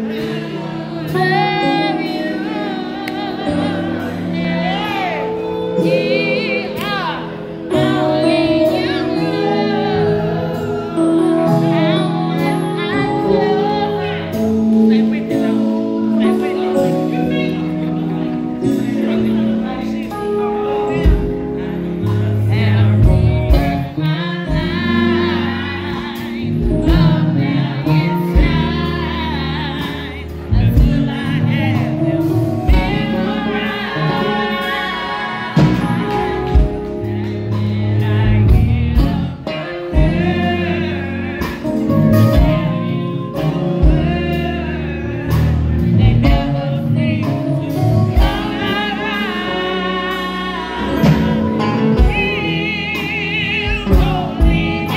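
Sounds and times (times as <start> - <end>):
electric bass guitar: 0.0 - 54.9
electric guitar: 0.0 - 54.9
keyboard: 0.0 - 54.9
drum kit: 20.1 - 54.9.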